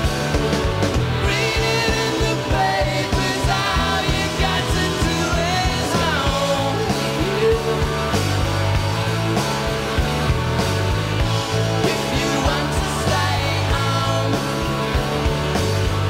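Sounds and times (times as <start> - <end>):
rock band playing live: 0.0 - 16.0
male lead vocal: 1.1 - 8.5, 11.6 - 16.0.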